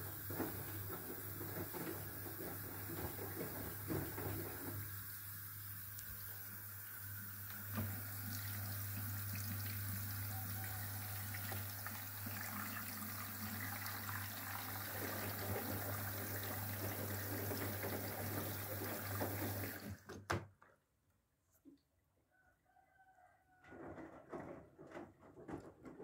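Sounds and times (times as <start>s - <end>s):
washing machine low hum: 0.0s - 20.1s
water rushing into dispenser: 0.0s - 20.1s.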